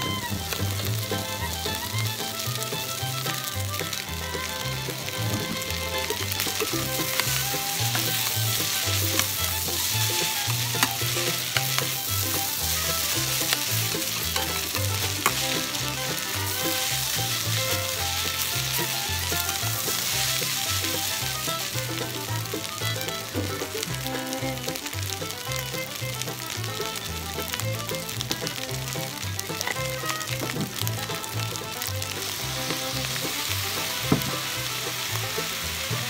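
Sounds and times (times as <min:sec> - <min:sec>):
background music bass line: 0:00.0 - 0:36.0
rice sizzling in a pan: 0:00.0 - 0:36.0
spatula tapping on pan: 0:00.2 - 0:23.2, 0:34.0 - 0:34.5
metal spatula scraping pan: 0:04.5 - 0:23.3.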